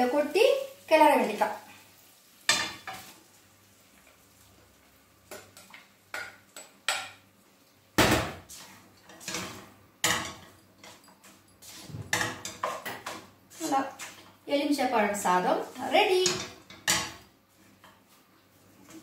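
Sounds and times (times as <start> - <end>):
spoon knocking on bowl and pan: 5.3 - 7.2.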